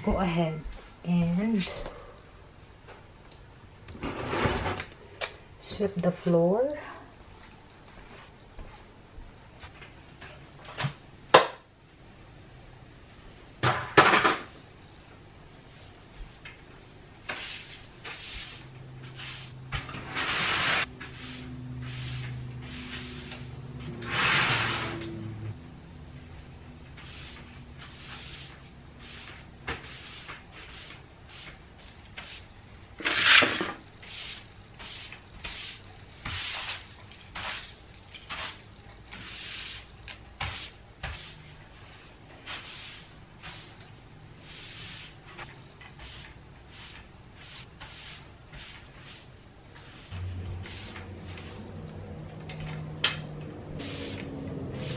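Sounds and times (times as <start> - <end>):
broom sweeping floor: 0.1 - 1.8, 4.0 - 4.9, 5.7 - 9.9, 15.7 - 25.6, 26.2 - 54.9
broom scraping sweep: 4.0 - 4.8, 15.7 - 25.6, 26.3 - 54.9.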